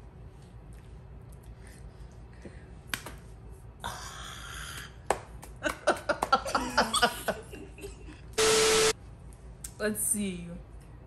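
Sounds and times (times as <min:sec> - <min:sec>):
hand slapping a face: 0:02.9 - 0:03.3, 0:05.1 - 0:06.4.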